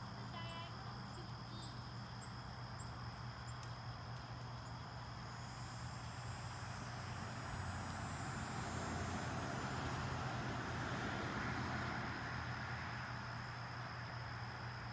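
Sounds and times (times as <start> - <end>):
crickets trilling: 0.0 - 14.9.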